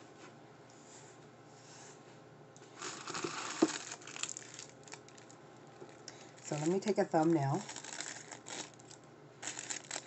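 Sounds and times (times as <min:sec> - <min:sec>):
wrapper crinkling: 0:02.8 - 0:10.0.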